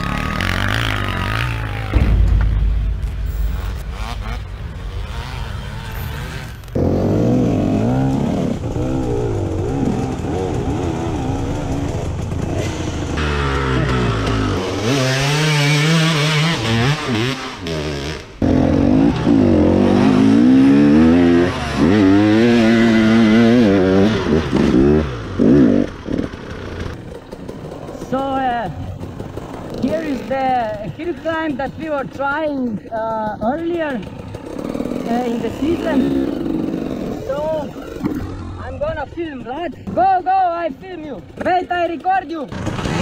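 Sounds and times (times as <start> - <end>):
dirt bike engine revving: 0.0 - 27.2, 34.0 - 38.8, 42.5 - 43.0.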